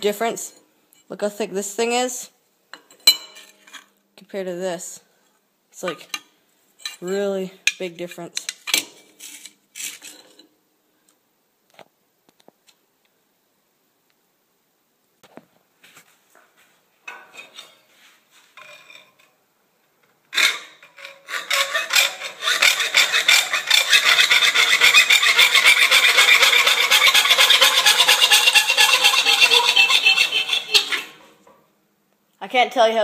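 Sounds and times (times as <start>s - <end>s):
hacksaw cutting thin metal sheet: 20.3s - 31.3s.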